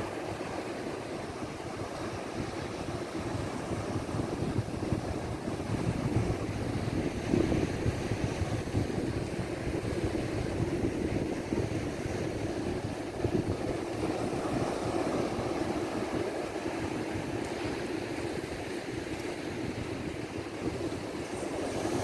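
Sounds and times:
ocean surf breaking: 0:00.0 - 0:22.0
wind buffeting microphone: 0:00.0 - 0:22.0.

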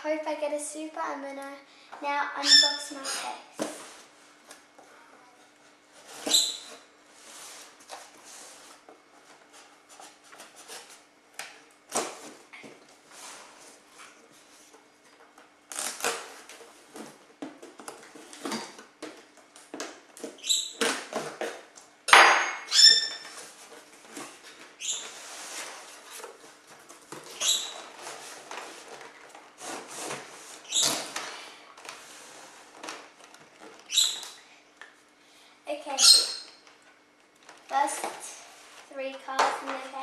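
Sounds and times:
cardboard squeaks: 0:06.0 - 0:06.9, 0:24.2 - 0:31.3, 0:33.6 - 0:34.4.

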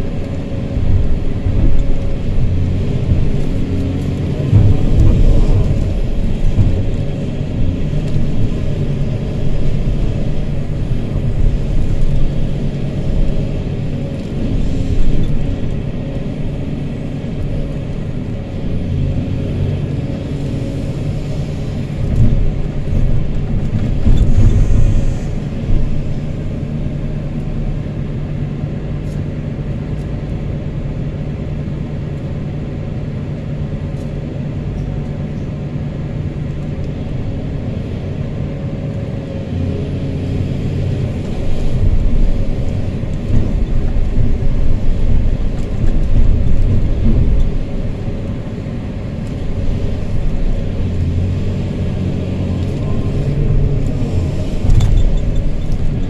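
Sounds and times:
excavator engine and hydraulics: 0:00.0 - 0:56.0.

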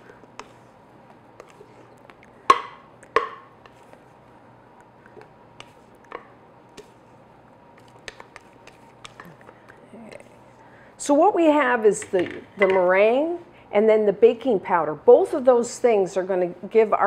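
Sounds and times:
utensil knocking on bowl: 0:02.5 - 0:03.5.

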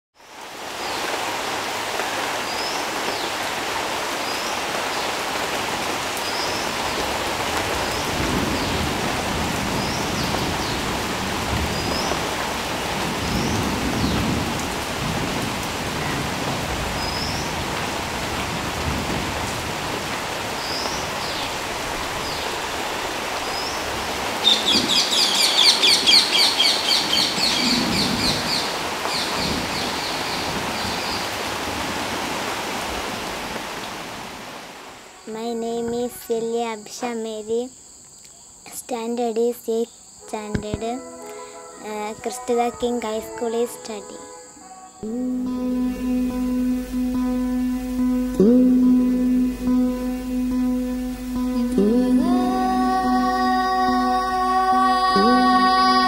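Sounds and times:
rain on leaves and wet ground: 0:00.1 - 0:38.3, 0:40.3 - 0:44.2, 0:45.0 - 0:56.0
bird chirping: 0:23.5 - 0:30.4
rapid trilling bird call: 0:24.4 - 0:29.3.

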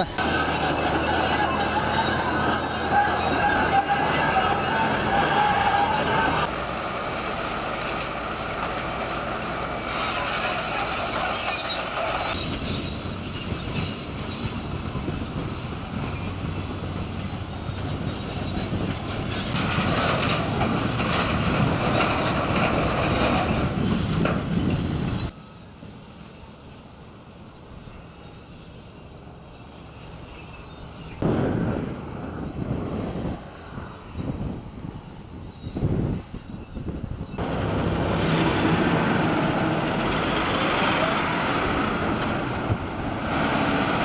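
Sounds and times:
high metallic squeals: 0:00.0 - 0:06.5, 0:09.8 - 0:32.6, 0:33.8 - 0:42.7
diesel engines running: 0:00.0 - 0:26.0, 0:37.4 - 0:44.0.

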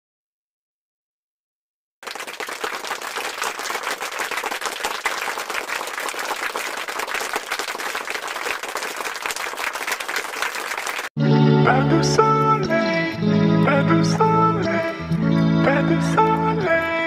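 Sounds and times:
crowd applause: 0:02.0 - 0:11.1.

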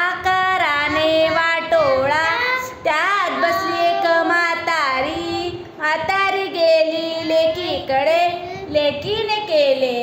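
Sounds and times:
small child singing: 0:00.3 - 0:04.4.

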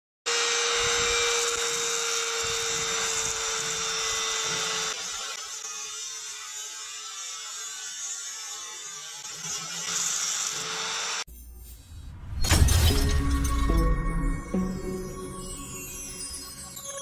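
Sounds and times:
rotary tool high whine: 0:00.3 - 0:12.1.

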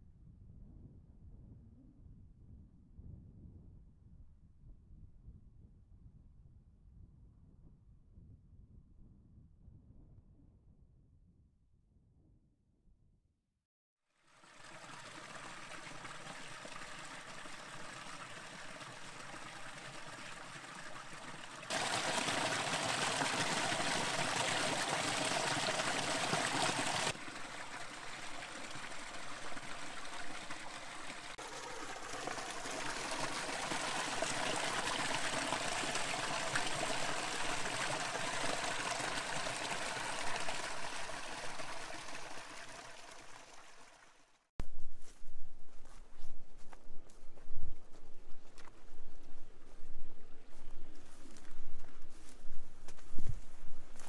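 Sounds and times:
stream trickling over rocks: 0:14.2 - 0:44.4.

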